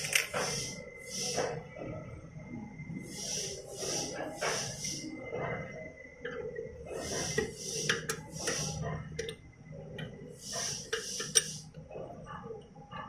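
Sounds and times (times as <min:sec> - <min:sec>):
faint machine hum: 0:00.0 - 0:13.0
short hissing bursts: 0:00.4 - 0:01.4, 0:03.1 - 0:05.1, 0:07.0 - 0:08.8, 0:10.4 - 0:11.7.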